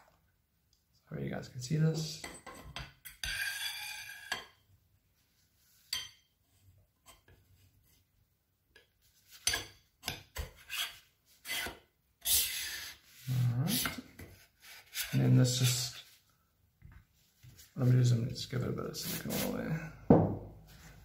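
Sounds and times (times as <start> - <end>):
knock: 20.1 - 20.5.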